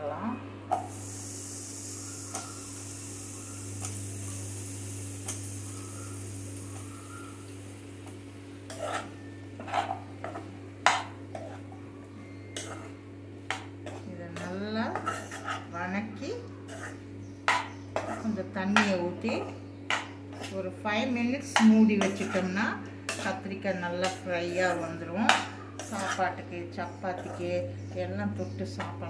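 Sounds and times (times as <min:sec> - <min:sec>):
eggplant sizzling in hot oil: 0:00.7 - 0:11.6
steel spatula scraping a pan: 0:08.7 - 0:10.4, 0:14.9 - 0:15.8, 0:16.7 - 0:18.4, 0:19.3 - 0:20.6, 0:22.0 - 0:23.4, 0:24.0 - 0:26.4, 0:27.2 - 0:27.5.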